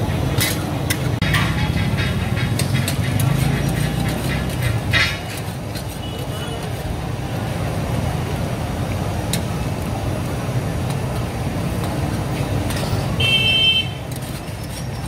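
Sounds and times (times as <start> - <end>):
road traffic rumble: 0.0 - 15.0
metal spatula stirring: 0.2 - 7.0, 14.0 - 15.0
vehicle horn toot: 13.2 - 14.0.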